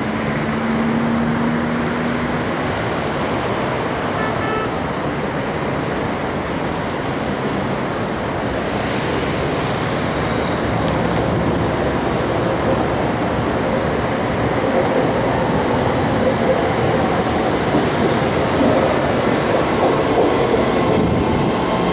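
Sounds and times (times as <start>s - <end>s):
road traffic: 0.0s - 21.9s
train approaching: 0.0s - 21.9s
high hiss: 8.4s - 11.4s.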